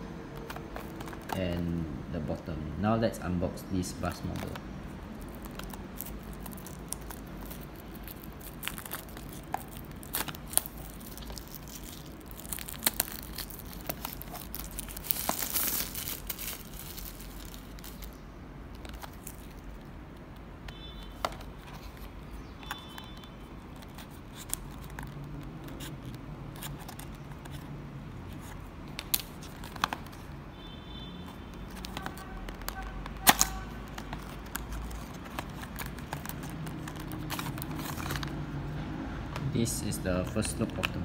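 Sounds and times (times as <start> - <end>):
cardboard box clicks and rustles: 0.4 - 1.6, 31.7 - 38.4.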